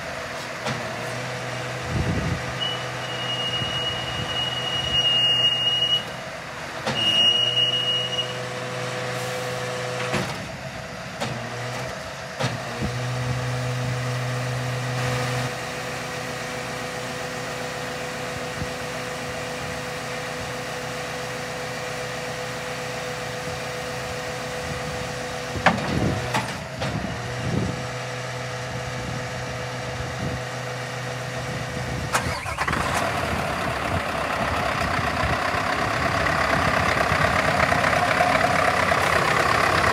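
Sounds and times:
diesel truck engine idling: 15.6 - 39.9.

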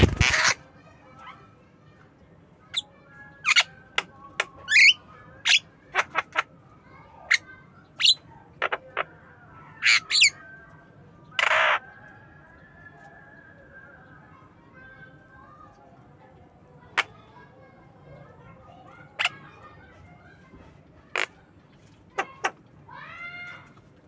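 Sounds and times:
bird harsh squawk: 0.0 - 0.6, 2.7 - 3.8, 4.7 - 6.5, 7.1 - 9.1, 9.7 - 10.5, 11.3 - 11.9, 19.1 - 19.6.

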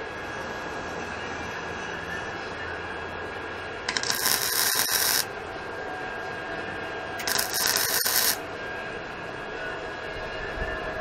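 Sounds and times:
welder crackling sizzle: 3.9 - 5.3, 7.2 - 8.4.

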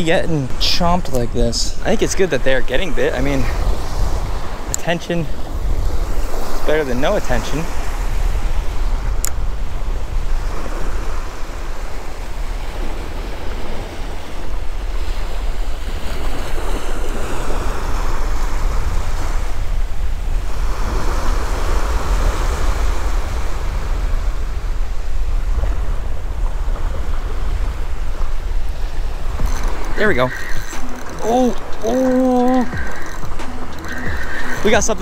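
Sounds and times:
wind rumbling on microphone: 0.0 - 35.0
small surf waves washing up beach: 0.3 - 35.0.

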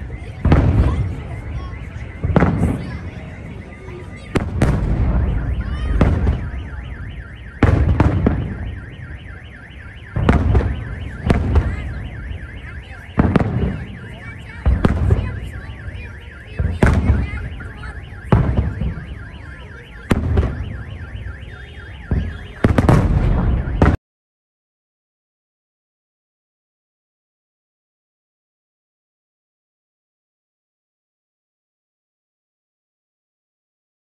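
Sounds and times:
rumbling echo: 0.1 - 9.2
firework shells booming: 0.2 - 24.0.

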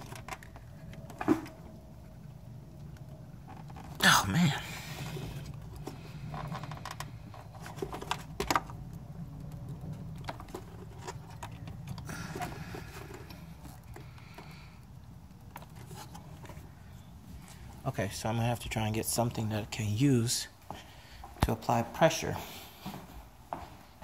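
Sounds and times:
small plastic clicks and creaks: 5.4 - 16.6.

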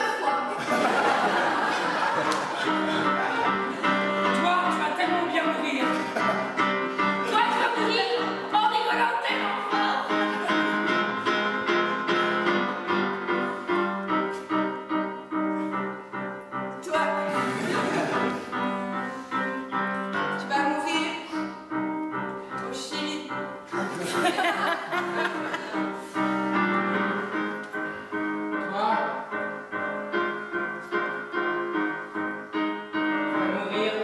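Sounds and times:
keyboard playing notes and chords: 0.0 - 4.5.

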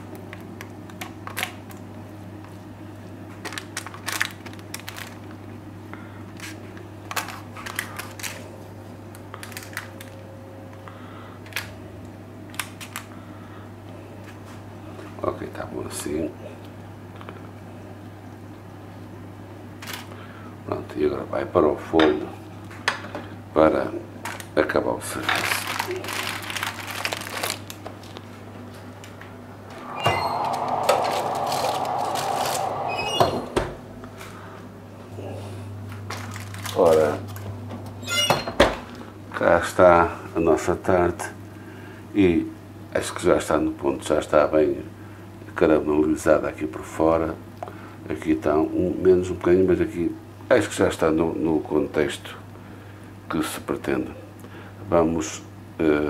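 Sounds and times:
steady low hum: 29.2 - 36.0
steady rushing noise: 29.6 - 34.1
door shutting thump: 32.9 - 33.8.

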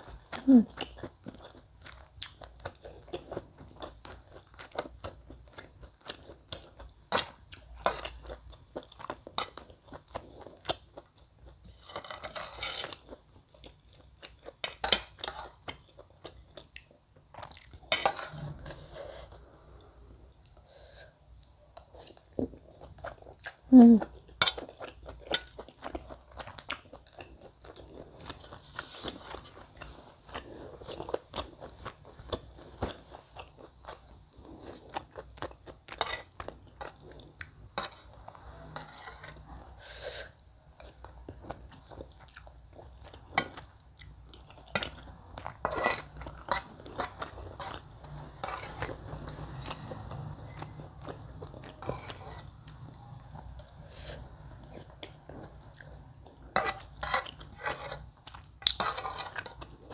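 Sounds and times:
metal spoon scraping bowl: 11.8 - 13.0, 17.9 - 19.3, 37.8 - 40.3, 45.6 - 50.8, 51.4 - 52.7, 56.5 - 58.1, 58.8 - 59.7
chewing and slurping: 24.2 - 59.9.

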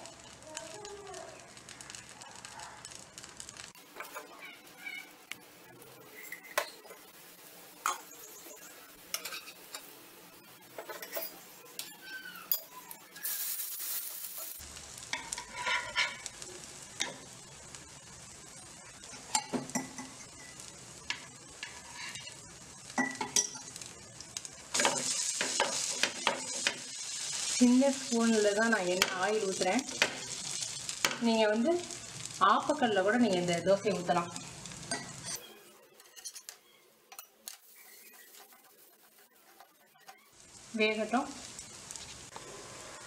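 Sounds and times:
dosas sizzling in pan: 0.0 - 43.0
spatula scraping pan: 10.7 - 12.6, 15.2 - 16.3, 21.6 - 22.4, 34.9 - 40.3.

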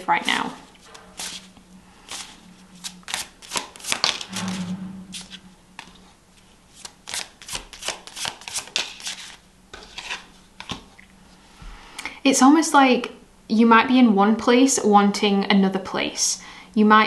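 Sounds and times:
cards being shuffled: 0.9 - 1.5, 2.1 - 4.3, 6.7 - 10.9.

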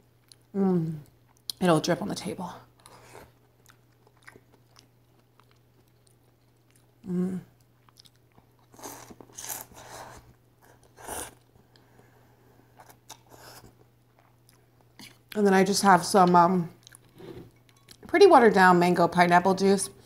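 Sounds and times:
person humming: 7.0 - 7.5.

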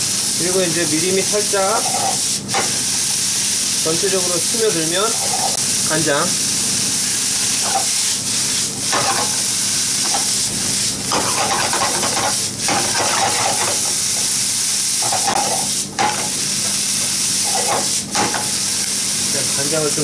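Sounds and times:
greens sizzling in a frying pan: 0.0 - 20.0.

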